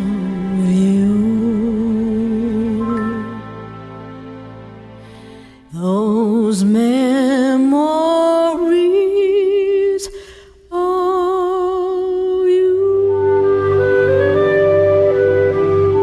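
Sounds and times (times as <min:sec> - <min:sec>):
low sustained accompanying notes: 0:00.0 - 0:06.6
person singing with vibrato: 0:00.0 - 0:13.3.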